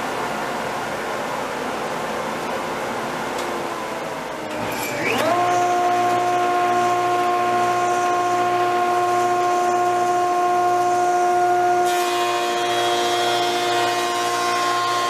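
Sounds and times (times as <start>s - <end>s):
jointer motor whine: 4.3s - 15.0s.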